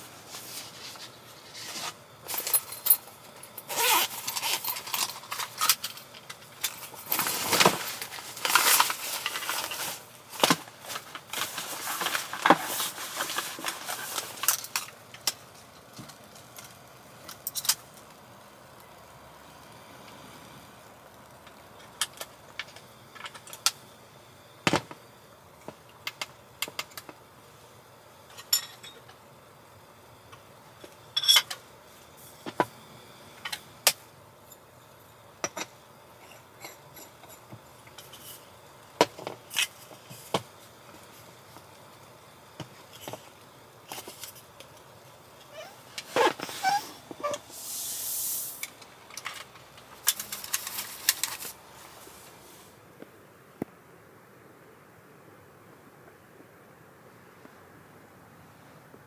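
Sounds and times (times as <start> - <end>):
handling rustling: 6.6 - 14.8.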